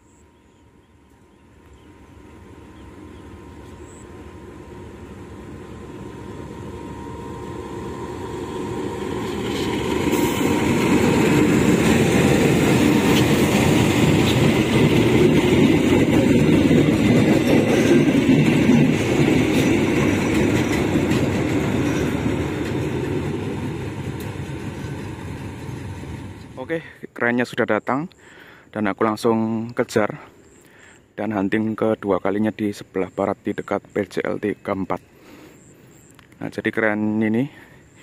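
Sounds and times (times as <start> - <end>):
diesel locomotive passing: 0.0 - 26.8
wheels clicking on rails: 9.0 - 26.6.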